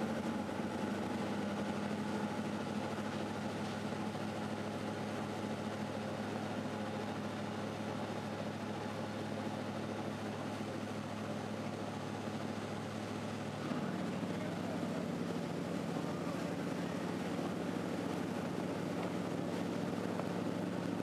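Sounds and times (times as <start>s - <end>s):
ferry engines droning: 0.0s - 21.0s.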